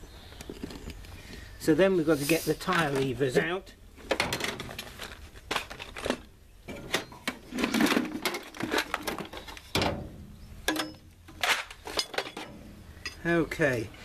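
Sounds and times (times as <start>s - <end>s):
tools clattering in metal toolbox: 4.1s - 9.9s, 10.7s - 13.3s.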